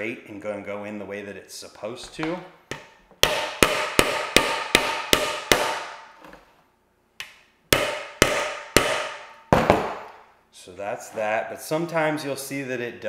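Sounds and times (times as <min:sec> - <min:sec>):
hammer striking metal with ring: 0:03.2 - 0:06.0, 0:07.7 - 0:10.1.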